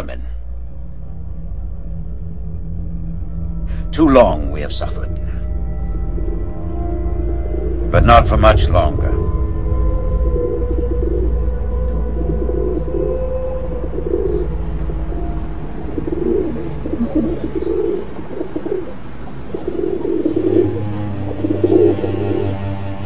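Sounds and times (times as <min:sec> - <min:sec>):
low steady hum: 0:00.0 - 0:23.0
pigeons cooing: 0:09.7 - 0:23.0.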